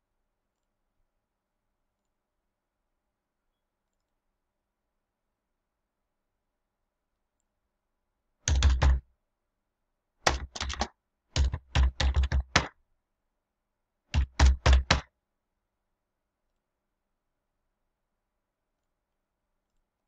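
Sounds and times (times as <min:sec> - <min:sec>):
keyboard typing: 0:08.5 - 0:09.0, 0:10.2 - 0:12.7, 0:14.1 - 0:15.1.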